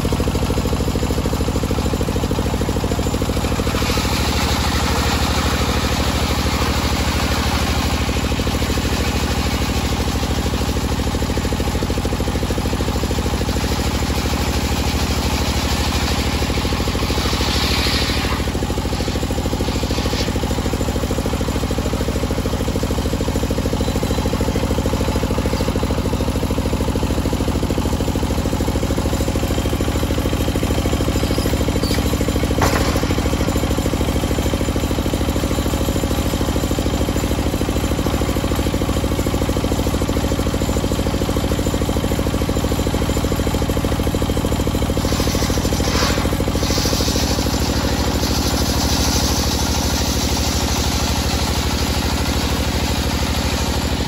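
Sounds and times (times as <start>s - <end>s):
circular saw cutting wood: 3.4s - 9.6s, 13.8s - 21.1s, 45.0s - 53.8s.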